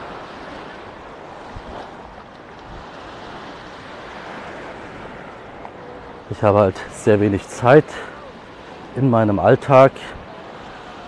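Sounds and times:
waves washing onto sand: 0.0s - 11.0s.

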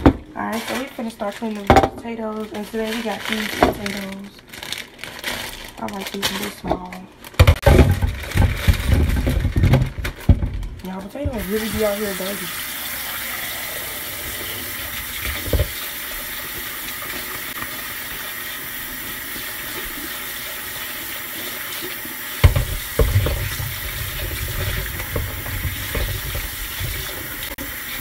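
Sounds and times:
tap running into sink: 11.2s - 12.4s, 14.2s - 18.4s, 22.4s - 28.0s.

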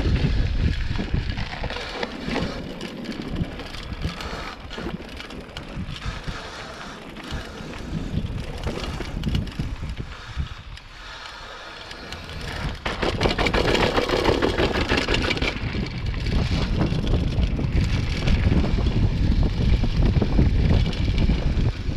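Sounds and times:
bike parts rattling: 0.0s - 21.9s
bike tyres rolling on dirt: 0.0s - 21.9s
wind buffeting microphone: 0.0s - 21.9s.

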